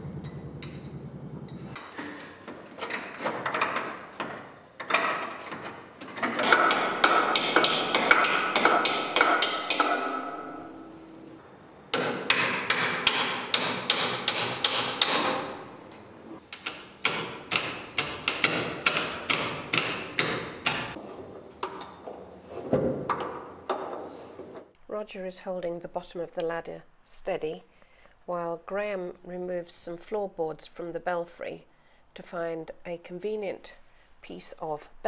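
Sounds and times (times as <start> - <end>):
hammer striking metal: 6.4 - 11.1, 11.9 - 15.6, 16.6 - 21.0.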